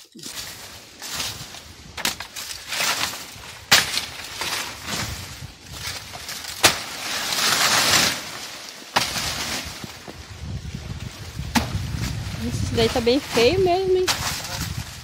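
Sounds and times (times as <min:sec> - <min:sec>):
dry leaves rustling: 0:00.0 - 0:15.0
blade chopping plant: 0:05.8 - 0:09.7.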